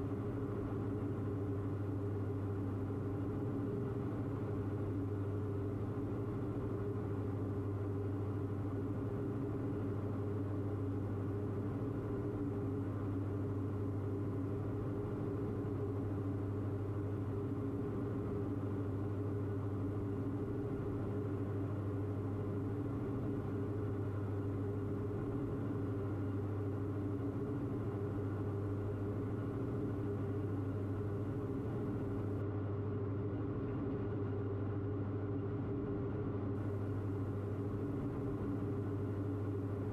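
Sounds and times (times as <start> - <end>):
aircraft engines and propellers droning: 0.0 - 33.4, 34.0 - 39.9.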